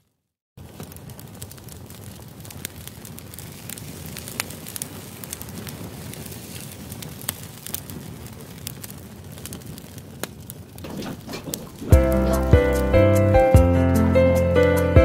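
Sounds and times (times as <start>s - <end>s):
sharp pops and crackles: 0.6s - 13.6s
broth bubbling: 10.8s - 13.2s.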